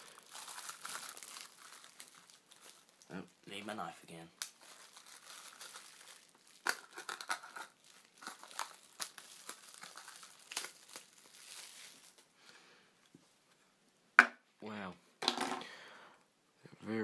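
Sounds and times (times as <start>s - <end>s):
plastic film crinkling and tearing: 0.0s - 3.7s, 4.4s - 12.3s.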